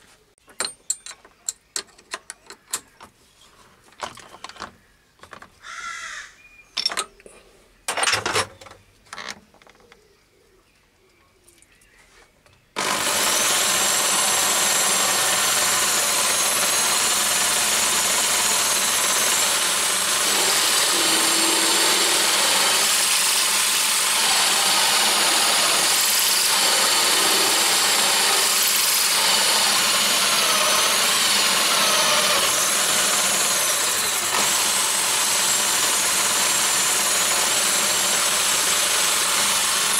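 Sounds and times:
clicks and knocks of tools: 0.5s - 3.2s, 3.9s - 5.6s, 6.8s - 7.3s, 7.9s - 10.0s
power drill cutting steel: 12.8s - 39.9s.

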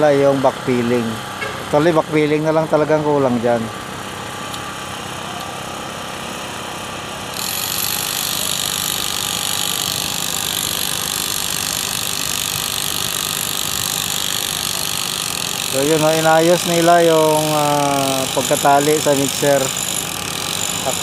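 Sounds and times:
construction machinery droning: 0.0s - 21.0s.

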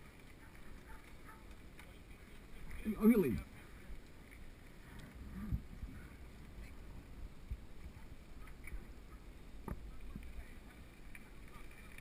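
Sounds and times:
bike tyres rolling on asphalt: 0.0s - 12.0s
faint ticks from bike: 0.0s - 12.0s
wind rumble on microphone: 0.0s - 12.0s.

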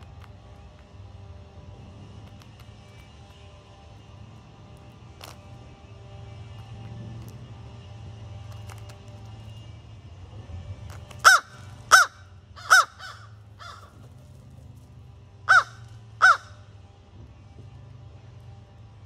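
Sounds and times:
crow cawing: 11.2s - 14.0s, 15.5s - 16.7s.

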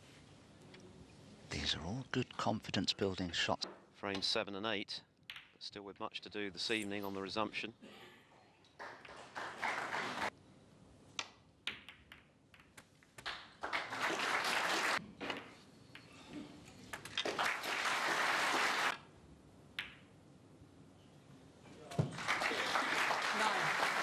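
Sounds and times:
audience applauding: 8.8s - 10.3s, 13.6s - 15.0s, 17.2s - 19.0s, 22.1s - 24.0s.

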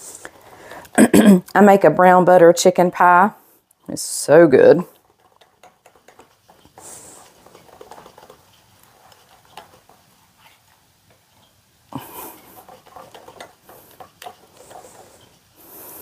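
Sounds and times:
utensil scraping against glass: 4.9s - 10.7s.

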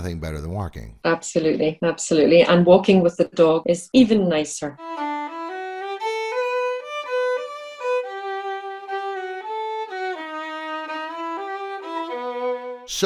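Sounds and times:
solo violin melody: 4.7s - 13.0s.

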